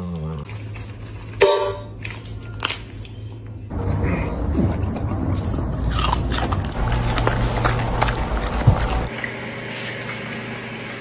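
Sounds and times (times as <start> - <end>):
dog chewing crunchy food: 4.8 - 9.1.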